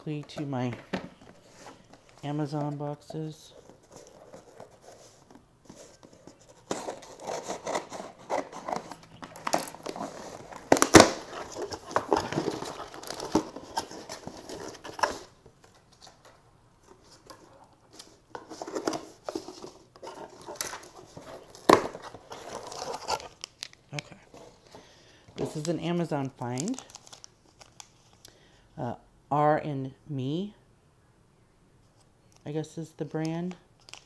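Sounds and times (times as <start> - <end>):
packaging crinkling: 3.5 - 16.2, 18.0 - 24.8, 26.4 - 28.2
cardboard scraping and tearing: 3.8 - 15.4, 18.5 - 23.4.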